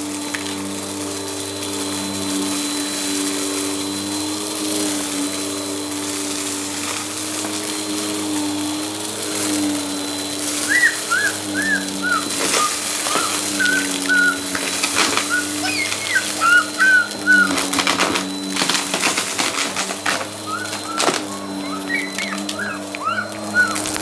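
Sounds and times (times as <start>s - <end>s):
vacuum cleaner running: 0.0s - 24.0s
short high chirps: 10.6s - 17.8s
debris clicking and rattling: 10.6s - 24.0s.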